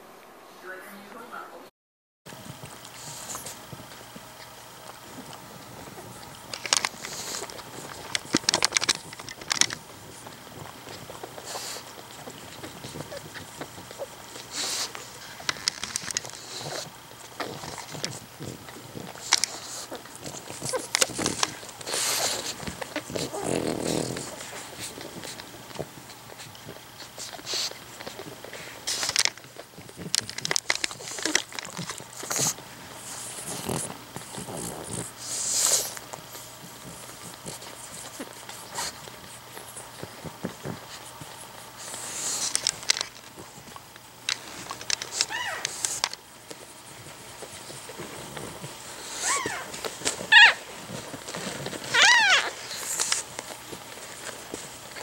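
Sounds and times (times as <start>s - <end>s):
small clicks and rustles: 2.4s - 35.0s, 35.6s - 55.0s
dog breathy snuffles: 2.8s - 4.0s, 5.0s - 55.0s
puppies squeaking: 45.1s - 45.9s, 49.0s - 49.7s, 50.3s - 50.6s, 51.9s - 52.7s.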